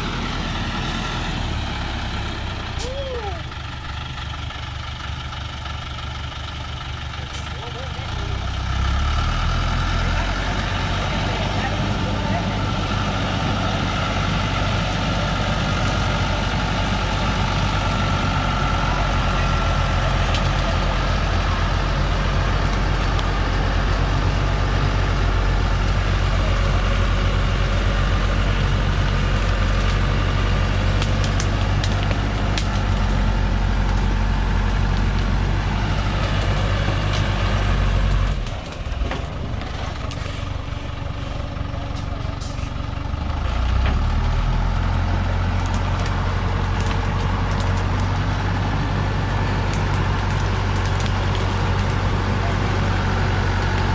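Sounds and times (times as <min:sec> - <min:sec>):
diesel truck engine under load: 0:00.0 - 0:53.9.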